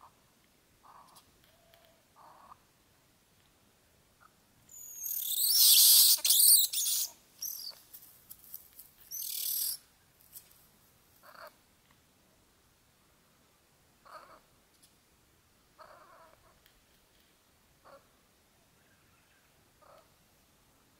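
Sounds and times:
hissing animal calls: 0:04.7 - 0:07.7.

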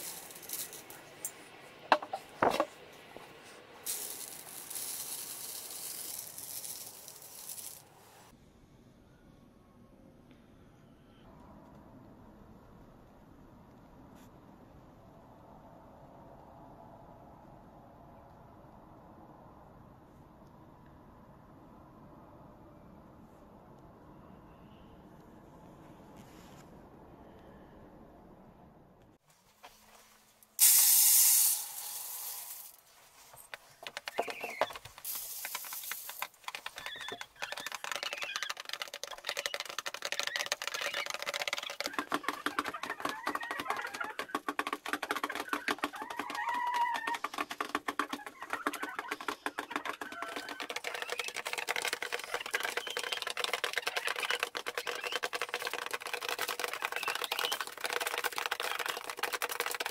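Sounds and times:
grain pouring into feeder: 0:00.0 - 0:01.0, 0:03.8 - 0:07.8, 0:30.6 - 0:32.8, 0:34.7 - 0:36.8
hens pecking grain: 0:00.0 - 0:07.8, 0:31.5 - 0:59.9.

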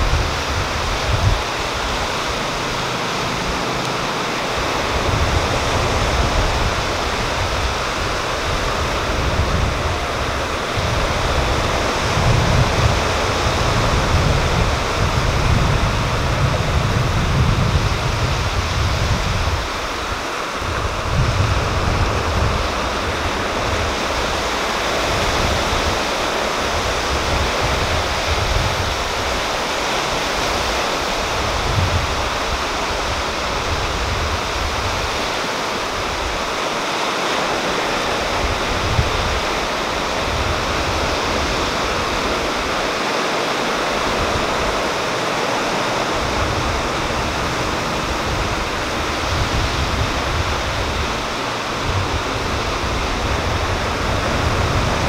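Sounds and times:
sea waves breaking on beach: 0:00.0 - 0:55.0.

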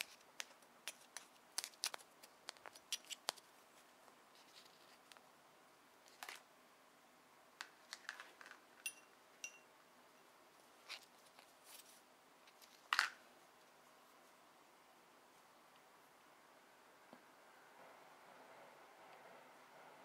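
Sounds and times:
ringing clinks: 0:08.8 - 0:09.7.

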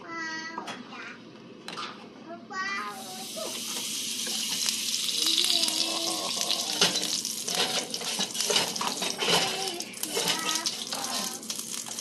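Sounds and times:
liquid pouring and splashing: 0:03.4 - 0:12.0.

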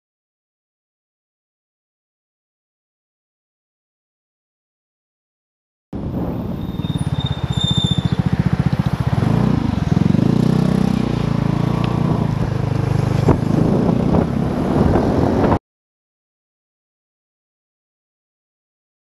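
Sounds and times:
scooter engine accelerating: 0:06.0 - 0:15.6.

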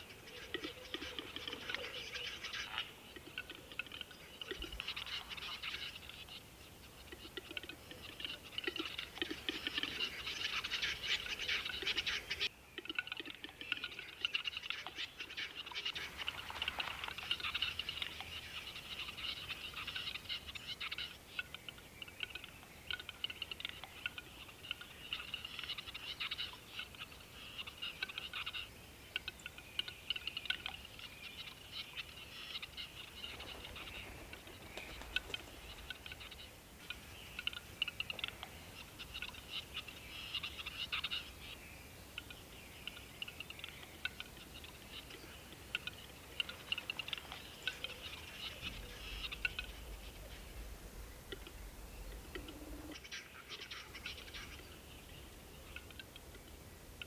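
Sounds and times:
chorus of clicking animal calls: 0:00.0 - 0:57.0
lower animal calls: 0:44.0 - 0:56.2.

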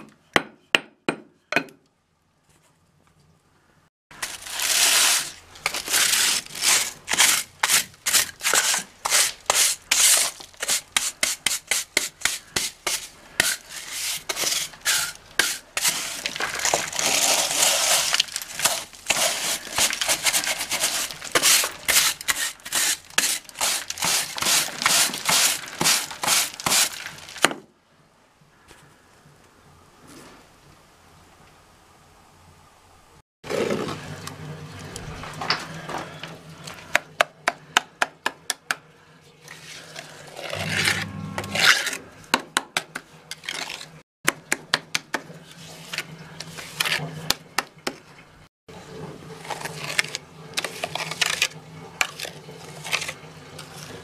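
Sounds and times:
brush scrubbing masonry: 0:04.2 - 0:27.4, 0:45.1 - 0:48.0, 0:49.0 - 0:54.0.

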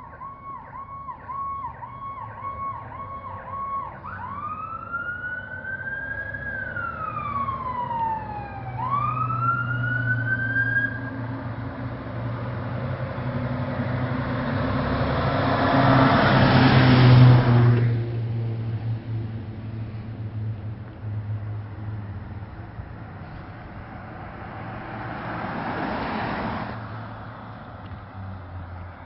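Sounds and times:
fire engine siren wailing: 0:00.0 - 0:17.6
road noise: 0:00.0 - 0:29.0
truck engine drone: 0:00.0 - 0:29.0.

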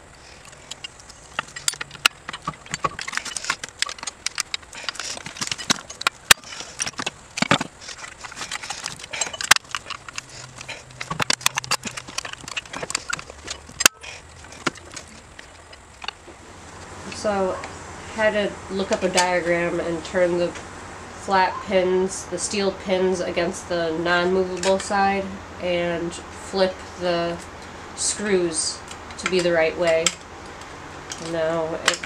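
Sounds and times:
metal springs clicking and clanking: 0:00.0 - 0:16.4, 0:26.6 - 0:32.0.

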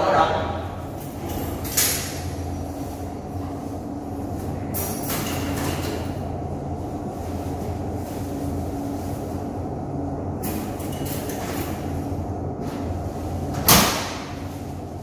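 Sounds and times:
steady low hum: 0:00.0 - 0:15.0
steel locker door banging shut: 0:13.6 - 0:14.4.

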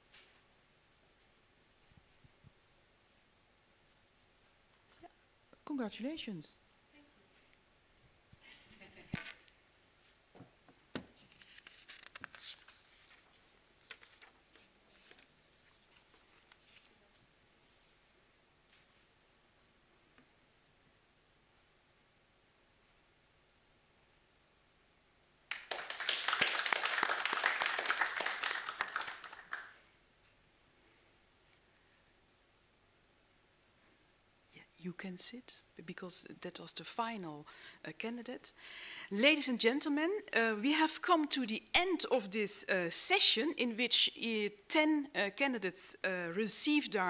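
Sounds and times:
small audience applause: 0:25.5 - 0:29.8.

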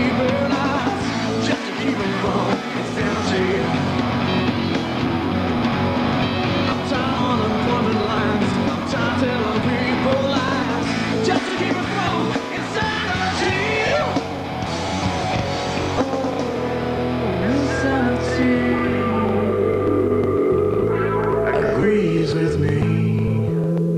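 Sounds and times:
rock music: 0:00.0 - 0:23.9.

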